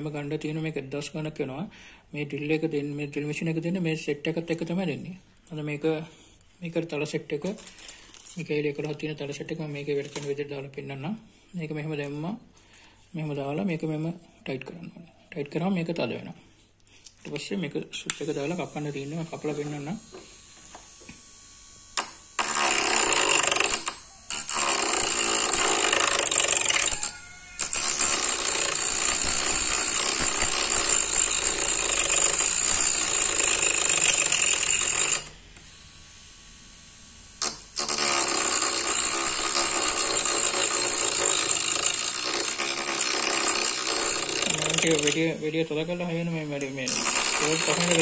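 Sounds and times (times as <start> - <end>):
rotary tool cutting plastic pipe: 37.4 - 45.4, 46.6 - 48.0.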